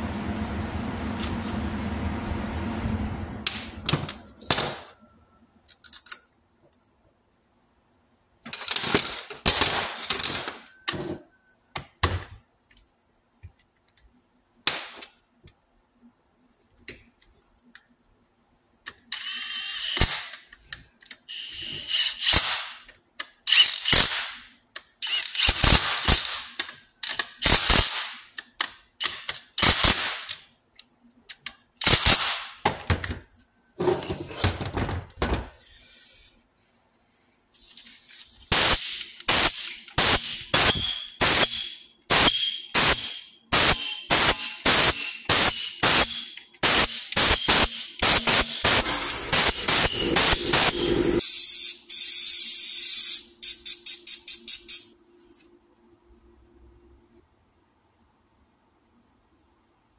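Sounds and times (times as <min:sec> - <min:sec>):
impact wrench hammering: 0:38.5 - 0:51.2.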